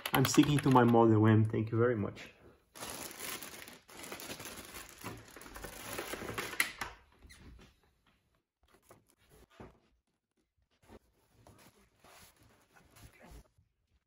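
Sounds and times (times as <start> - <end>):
plastic packaging rustling: 2.7 - 6.9.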